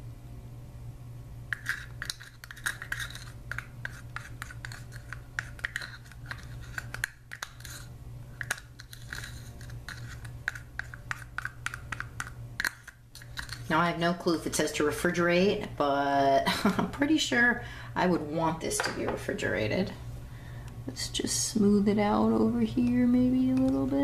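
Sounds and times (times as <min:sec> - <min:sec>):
plastic spoon scraping a plastic cup: 0:01.5 - 0:13.7.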